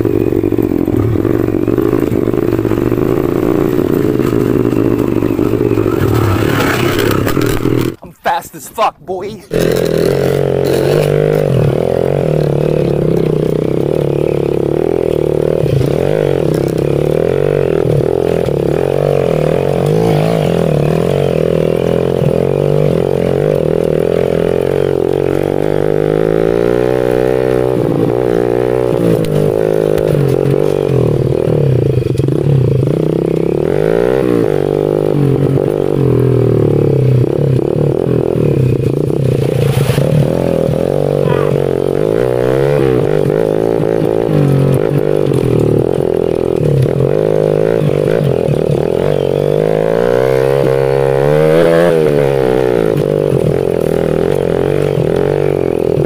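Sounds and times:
pit bike engine revving: 0.0s - 8.1s, 9.4s - 56.0s.

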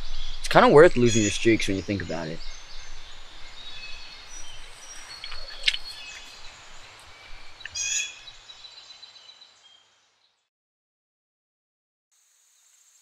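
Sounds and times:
birds chirping and calling: 0.0s - 9.8s.

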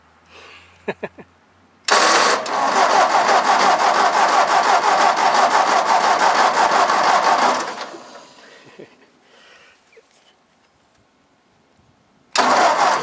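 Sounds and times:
tractor engine cranking: 1.8s - 8.5s, 12.3s - 13.0s.

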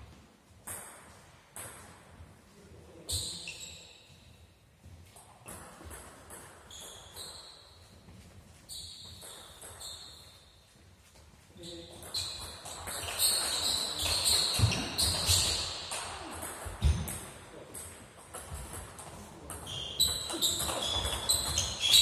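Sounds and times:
table tennis balls bouncing: 0.6s - 2.4s, 5.1s - 8.2s, 8.8s - 10.5s, 11.8s - 22.0s.

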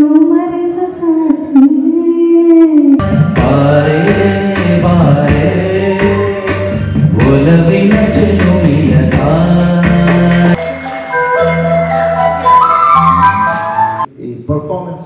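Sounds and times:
man singing melody: 3.0s - 10.6s
instrumental accompaniment: 3.0s - 14.1s.

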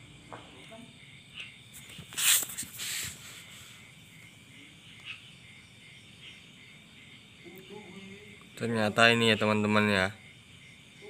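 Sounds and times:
crickets chirring: 0.0s - 11.0s
hissing scrapes: 1.8s - 3.8s.

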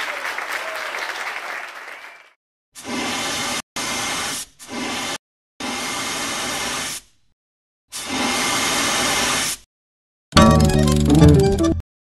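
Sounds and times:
applause: 0.0s - 2.4s
music: 10.4s - 11.8s.

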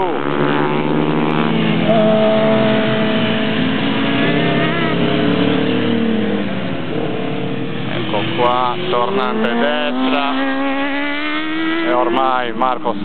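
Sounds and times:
pit bike engines running: 0.0s - 13.0s.

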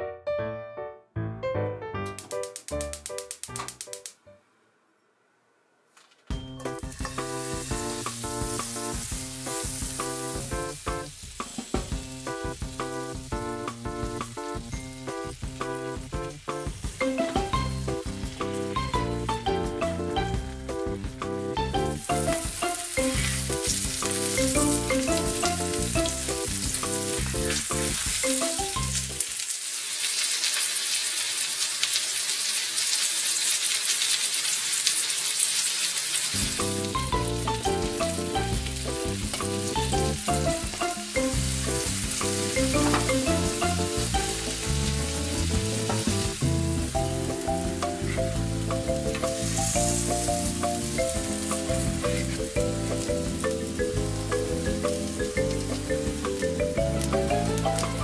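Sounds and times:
light background music: 6.3s - 29.2s, 36.4s - 58.0s
fish sizzling in a skillet: 6.6s - 18.9s, 22.0s - 58.0s.

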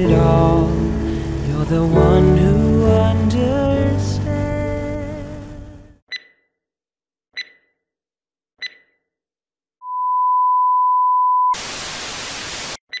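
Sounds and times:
static hiss: 0.0s - 2.6s, 11.6s - 12.8s.

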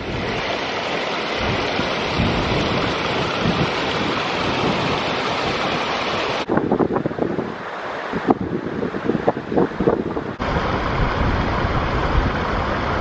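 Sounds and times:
stream splashing over rocks: 0.0s - 6.5s.

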